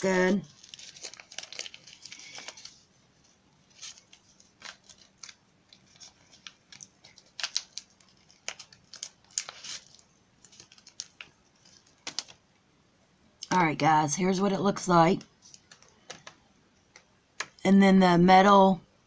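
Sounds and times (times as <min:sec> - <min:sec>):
plastic packaging crinkling: 0:00.2 - 0:12.4, 0:15.2 - 0:17.6.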